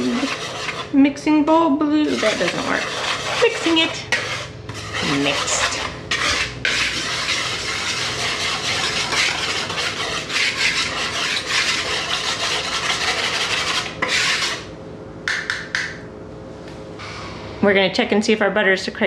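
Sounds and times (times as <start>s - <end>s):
whisk stirring flour in bowl: 0.0s - 1.2s, 1.9s - 14.7s.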